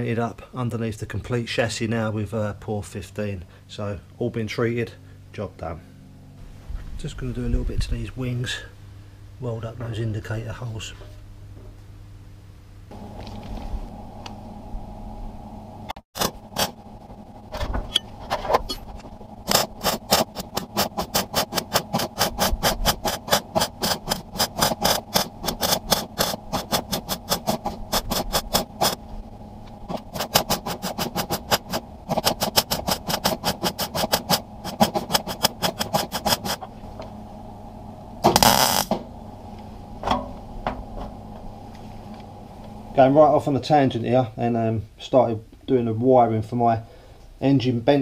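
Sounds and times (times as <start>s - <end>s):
welder crackling: 12.9s - 43.9s
loud burst of noise: 38.2s - 40.0s.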